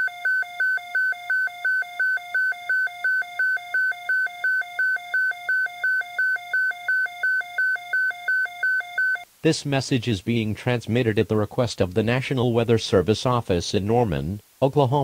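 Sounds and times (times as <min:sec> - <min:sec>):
electronic alert beeps: 0:00.0 - 0:09.2.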